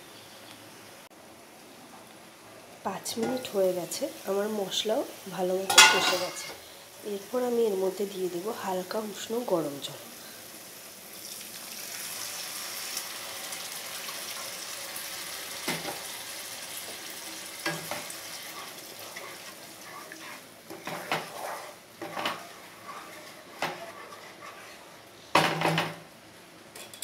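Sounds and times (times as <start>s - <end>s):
water hissing in hot pan: 3.5s - 25.4s
wooden spatula scraping pan: 5.7s - 6.6s, 17.6s - 25.6s.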